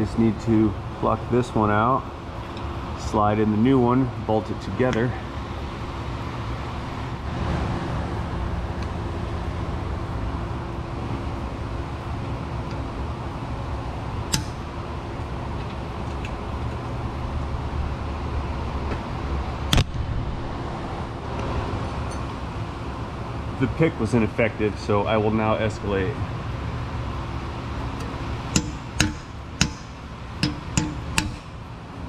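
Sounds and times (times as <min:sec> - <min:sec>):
steady low hum: 0:00.0 - 0:32.0
sharp metallic clicks: 0:14.3 - 0:14.6, 0:28.0 - 0:31.5.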